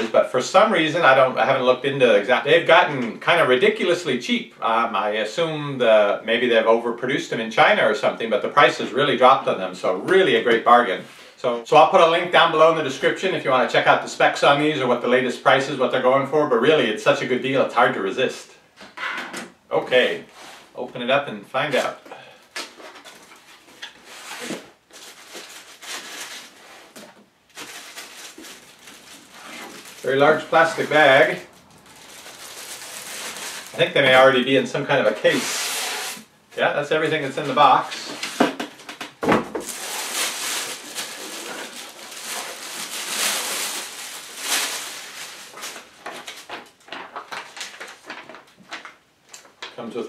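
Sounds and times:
cardboard and foam rustling: 0:21.7 - 0:36.3, 0:37.0 - 0:48.8
plastic bag crinkling: 0:21.8 - 0:36.3, 0:39.5 - 0:49.8.

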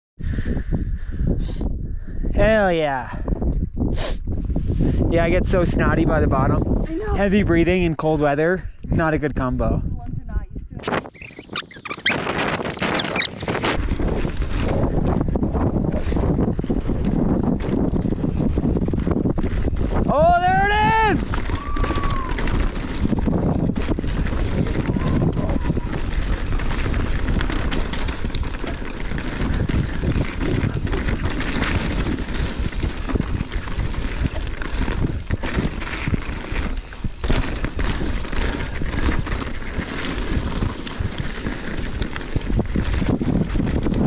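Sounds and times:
wind buffeting microphone: 0:00.2 - 0:44.0
tyres rolling on gravelly trail: 0:10.9 - 0:44.0
bike knocks and rattles: 0:21.3 - 0:44.0.

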